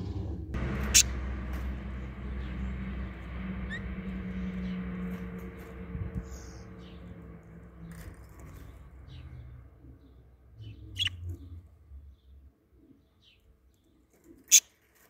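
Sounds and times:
low rumble: 0.0 - 12.5
budgerigars chirping: 10.6 - 11.2.

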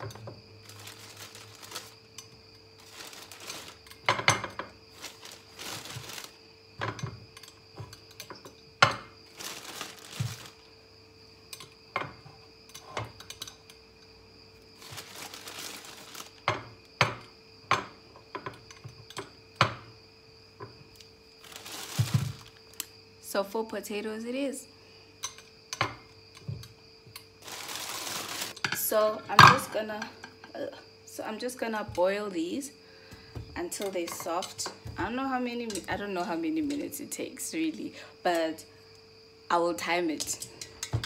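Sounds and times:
plastic bag crinkling: 0.6 - 6.4, 9.2 - 10.7, 14.8 - 16.5, 21.4 - 22.8, 27.4 - 28.6.

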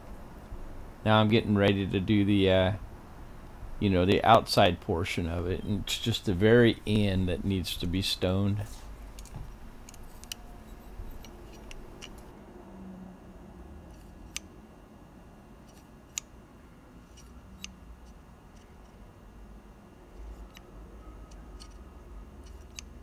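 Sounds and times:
low steady hum: 0.0 - 23.0
metallic caliper clicks: 9.1 - 12.3.

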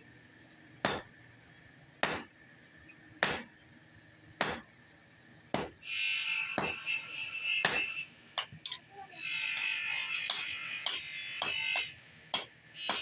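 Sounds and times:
hammer striking steel on anvil: 0.8 - 1.2, 2.0 - 2.4, 3.2 - 3.6, 4.4 - 4.7, 5.5 - 8.8, 9.5 - 13.0
high-pitched hissing buzz: 5.8 - 8.1.

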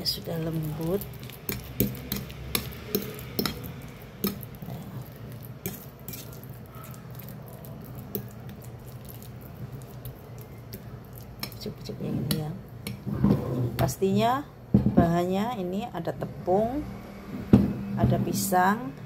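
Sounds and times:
fork mashing banana: 0.4 - 13.1
fork tines scraping a plate: 5.4 - 8.4.

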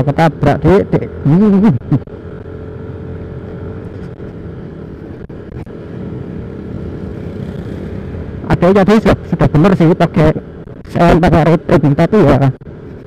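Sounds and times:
road noise: 0.0 - 13.0
scooter engine running: 0.4 - 10.7.

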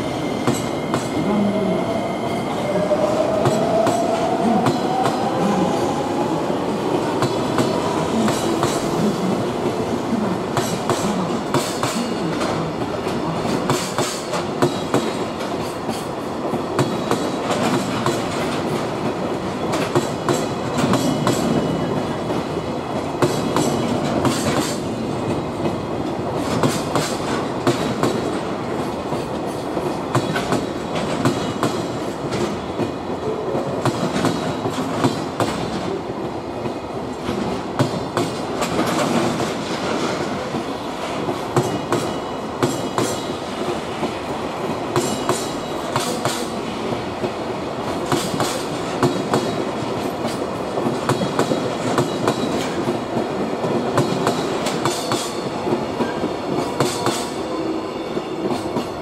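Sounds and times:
train wheels clacking over rail joints: 7.1 - 9.8, 10.5 - 22.4, 23.1 - 36.0, 36.6 - 57.5.

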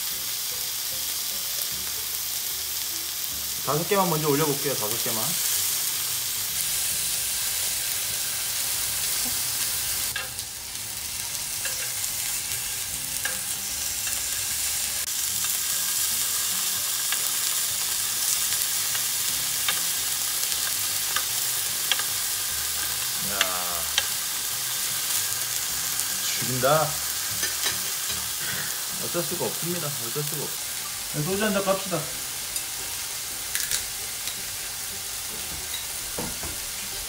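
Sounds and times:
meat sizzling on grill: 0.0 - 37.0
metal tongs clicking: 11.6 - 12.0.

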